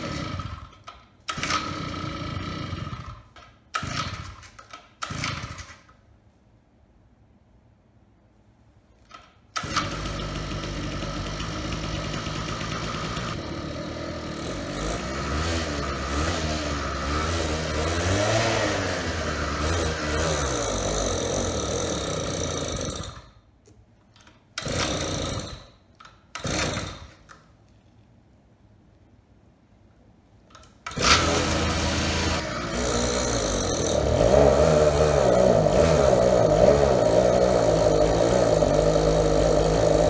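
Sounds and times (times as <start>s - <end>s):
small gas engine running: 0.0s - 4.3s, 9.6s - 23.3s, 30.9s - 40.0s
pull cord starter pulls: 0.0s - 6.0s, 9.0s - 23.3s, 24.2s - 27.5s, 30.5s - 40.0s.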